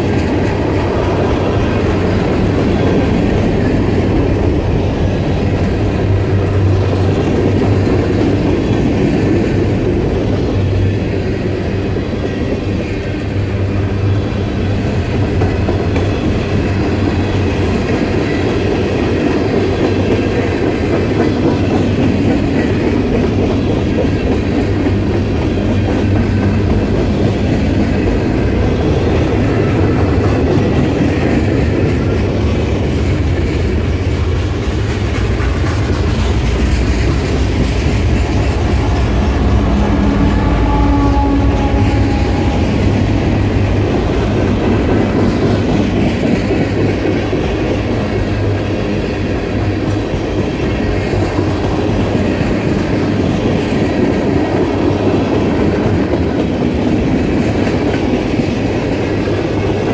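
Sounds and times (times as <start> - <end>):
steel wheels rumbling on rails: 0.0 - 59.9
wheels clacking over rail joints: 14.8 - 59.9.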